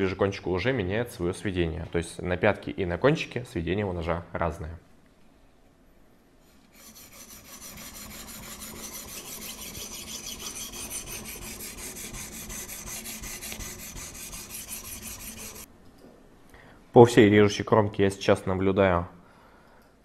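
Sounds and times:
sharpening stone scraping knife blade: 0:06.8 - 0:15.7.

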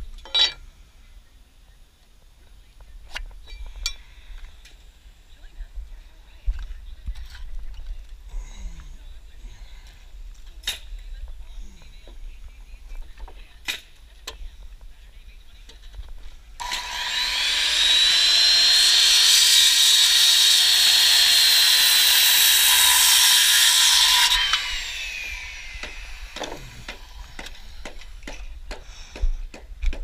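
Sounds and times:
power tool motor spinning: 0:16.6 - 0:28.2.

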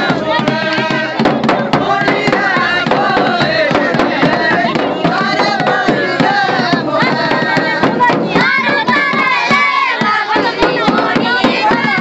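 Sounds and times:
crowd voices: 0:00.0 - 0:12.0
folk dance music: 0:00.0 - 0:12.0
sharp drum strokes: 0:00.0 - 0:12.0.

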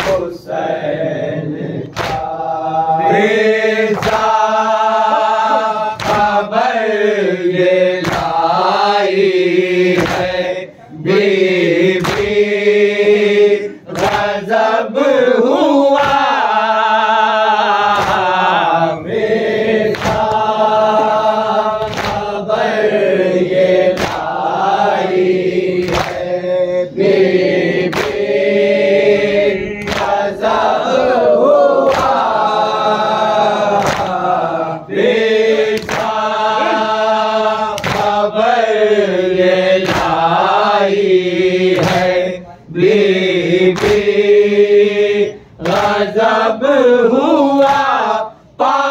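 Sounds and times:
men chanting a lament: 0:00.0 - 0:48.9
hands beating on chests: 0:01.9 - 0:02.3, 0:08.0 - 0:08.4, 0:24.0 - 0:24.3, 0:25.8 - 0:26.2, 0:33.8 - 0:34.2.

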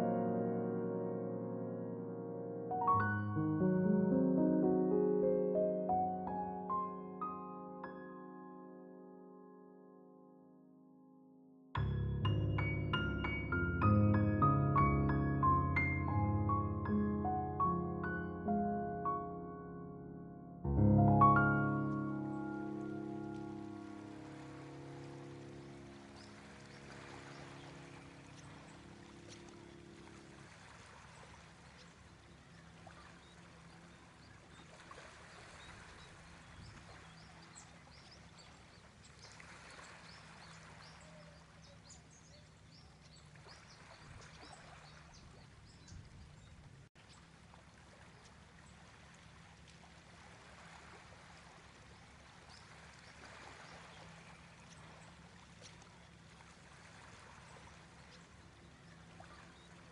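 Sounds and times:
music track: 0:00.0 - 0:26.9.

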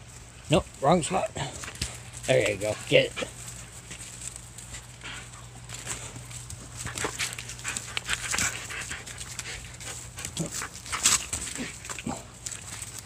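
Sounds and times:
dog chewing and biting rope: 0:01.1 - 0:13.0
dog panting: 0:04.6 - 0:12.2.

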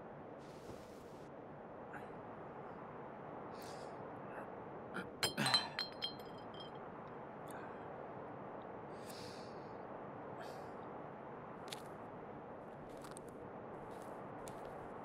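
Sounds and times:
glass bottle clinking: 0:05.2 - 0:06.7.

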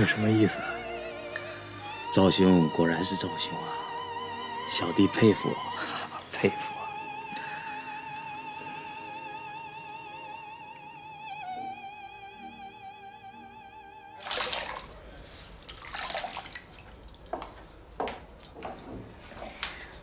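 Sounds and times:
woman singing operatic note: 0:06.6 - 0:14.2
water splashing in washbasin: 0:14.2 - 0:17.7.

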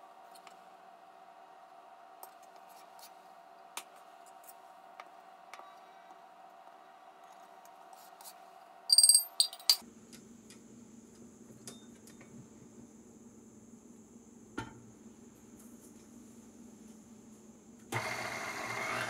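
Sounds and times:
metal measuring cups clattering: 0:08.9 - 0:09.8.

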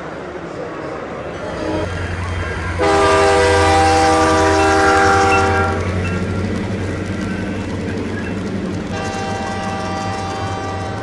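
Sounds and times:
multi-chime train horn: 0:02.8 - 0:05.8, 0:08.9 - 0:11.0.

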